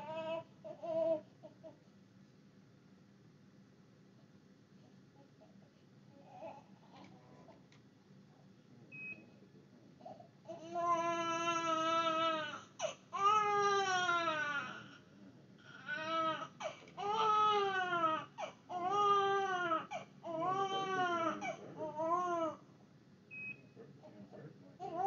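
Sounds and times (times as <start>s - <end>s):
newborn baby crying: 0.0s - 1.8s, 10.5s - 15.0s, 15.6s - 22.7s, 24.8s - 25.0s.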